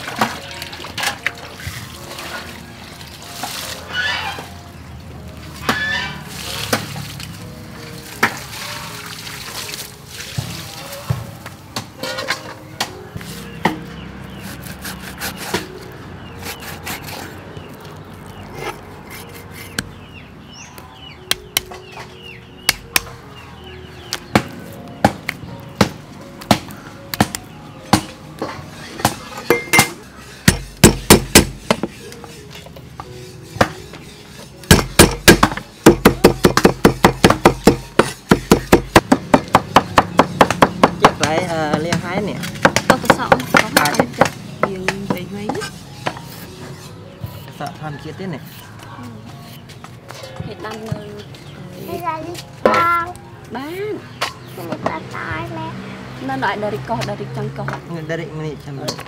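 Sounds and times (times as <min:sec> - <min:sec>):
soft background music: 0:00.0 - 0:59.0
cleaver chopping on wooden board: 0:24.1 - 0:28.2, 0:29.0 - 0:32.0, 0:33.6 - 0:33.8, 0:34.6 - 0:46.5.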